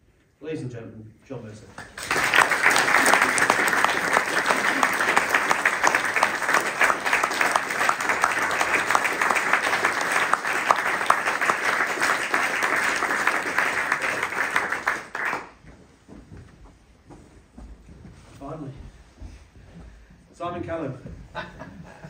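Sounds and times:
audience applauding: 1.8 - 15.6.

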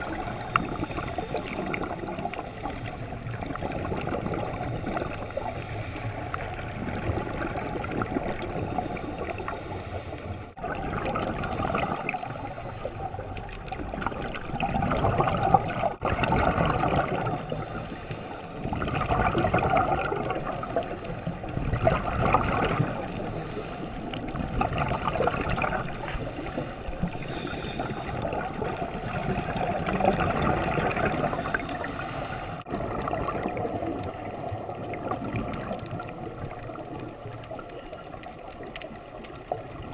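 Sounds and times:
regulator bubbles gurgling: 0.0 - 39.9
steady bubbling hiss: 0.0 - 39.9.

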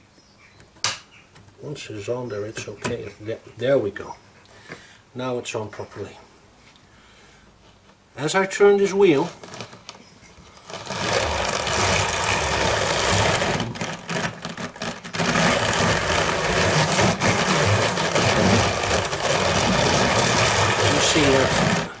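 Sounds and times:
hand-cranked drum carder running: 10.6 - 22.0.

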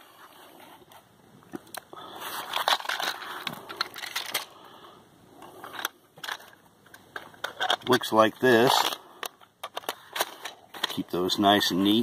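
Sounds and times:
cartridges rattling and clicking: 5.6 - 11.3.

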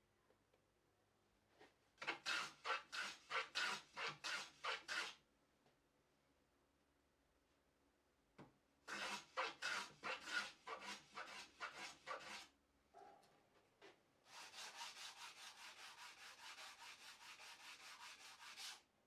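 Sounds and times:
sanding block on wood: 2.1 - 5.2, 8.9 - 12.5, 14.3 - 18.8.

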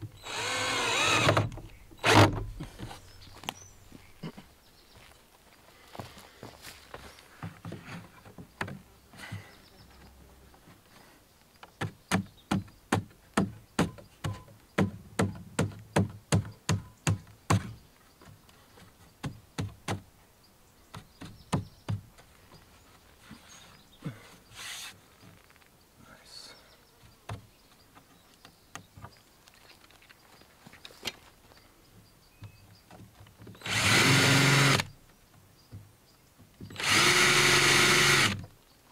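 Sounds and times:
hammer striking wood: 12.1 - 17.7.

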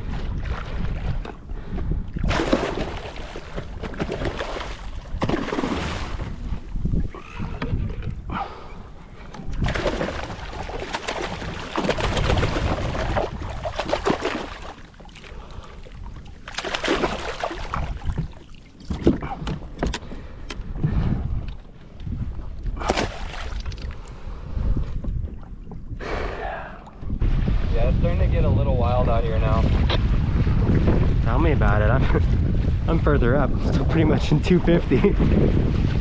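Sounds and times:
wind on microphone: 0.0 - 16.4, 17.0 - 36.0
water splashing: 2.2 - 7.6, 9.4 - 19.4, 22.8 - 24.0.

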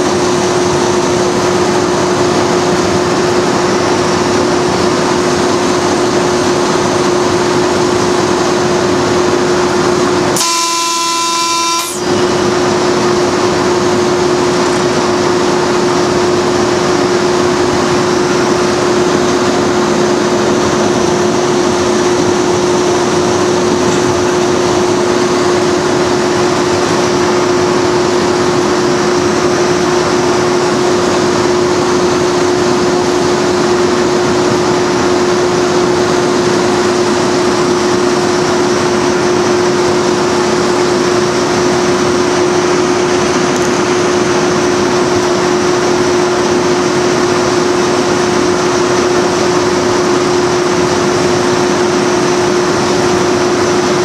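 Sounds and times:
diesel locomotive rumble: 0.0 - 54.0
locomotive horn: 10.4 - 12.6.

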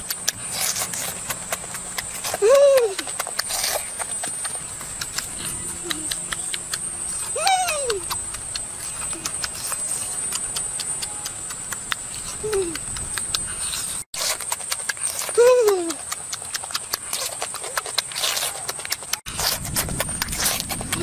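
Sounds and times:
young monkey squealing: 2.2 - 11.4.

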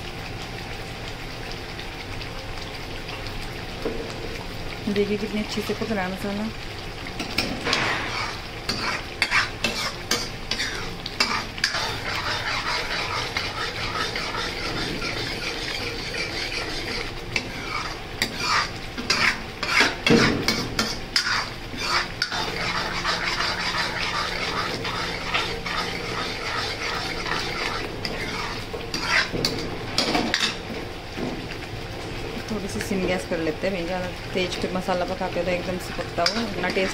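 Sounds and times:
paste sizzling and bubbling: 0.0 - 36.9
metal ladle scraping a pan: 7.2 - 30.6, 36.2 - 36.9.

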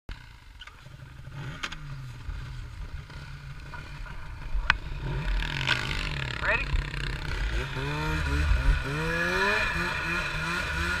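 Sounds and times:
snowmobile engine running: 0.3 - 11.0.

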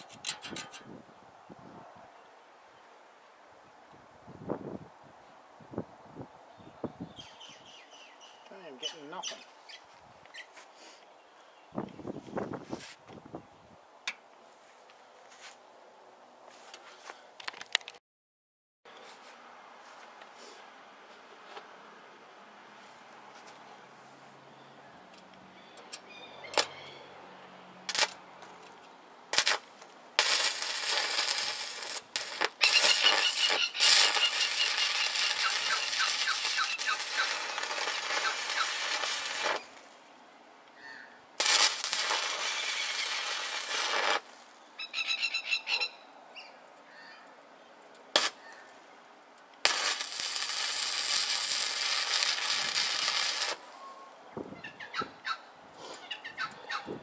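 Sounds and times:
welding arc crackling: 27.9 - 28.6, 29.3 - 39.9, 41.4 - 44.6, 48.2 - 48.4, 49.6 - 53.8
electrode striking cracks: 29.3 - 39.9, 41.4 - 44.6, 48.2 - 48.4, 49.6 - 53.8.

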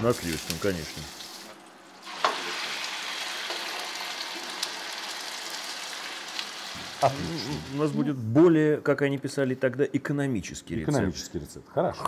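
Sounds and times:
food sizzling in frying pan: 0.0 - 8.0.

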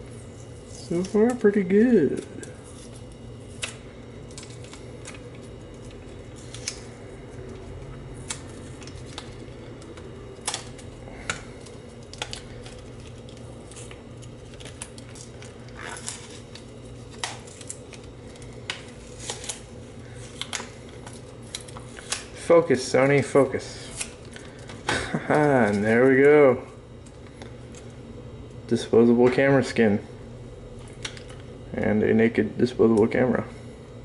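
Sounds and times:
sticker tearing off plastic: 7.9 - 22.4.

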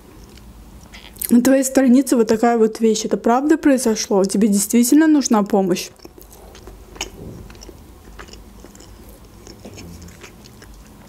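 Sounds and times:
person chewing cake: 0.1 - 1.4, 5.9 - 11.0
small mouth clicks: 0.2 - 1.3.

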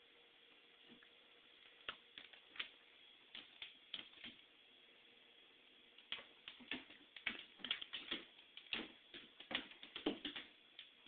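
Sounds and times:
cat claws ticking on hard floor: 6.0 - 11.0.

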